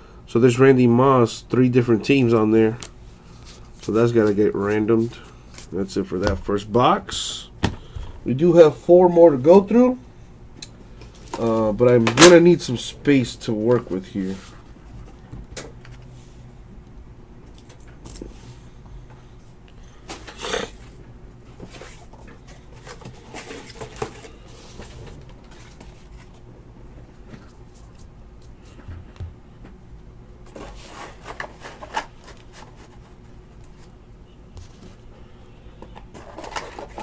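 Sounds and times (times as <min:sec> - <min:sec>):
trading cards rustling and sliding: 0:30.5 - 0:34.0.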